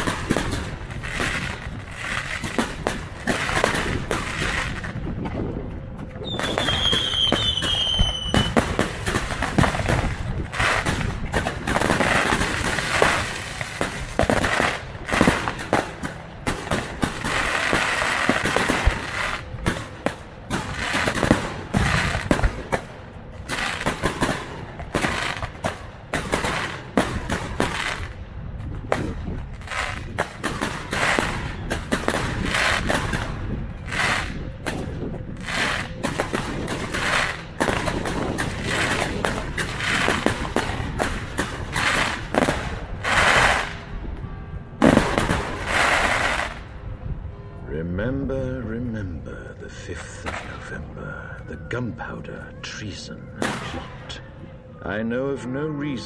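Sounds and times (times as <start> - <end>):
firework bangs and crackling: 0.0 - 47.1, 53.4 - 54.2
firework high whistle: 6.2 - 8.8, 41.8 - 47.7.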